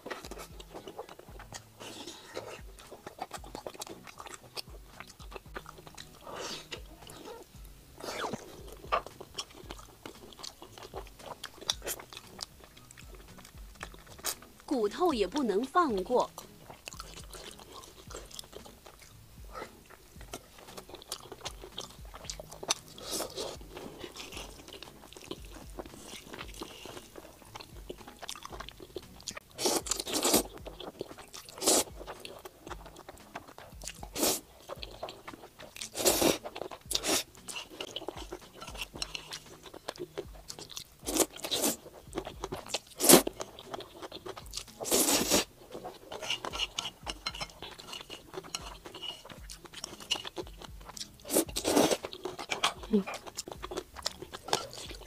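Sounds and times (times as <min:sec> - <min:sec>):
biting into food: 0:00.0 - 0:14.6, 0:16.4 - 0:55.0
slurping noodles: 0:00.0 - 0:14.6, 0:16.4 - 0:55.0
chewing: 0:00.0 - 0:55.0.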